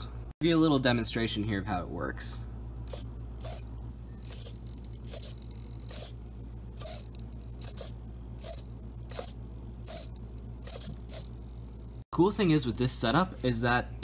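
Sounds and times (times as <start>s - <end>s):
small servo whirring: 2.8s - 12.1s.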